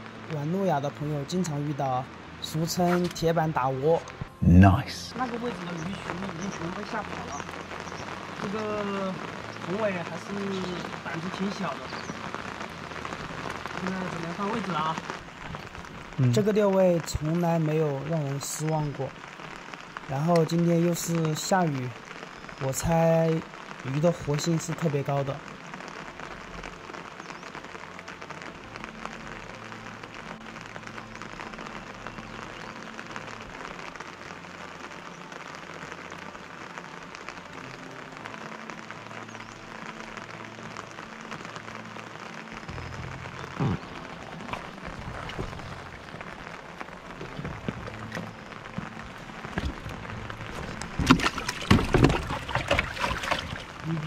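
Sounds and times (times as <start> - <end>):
rain hissing on river and rocks: 0.0 - 54.0
soft background music: 0.0 - 54.0.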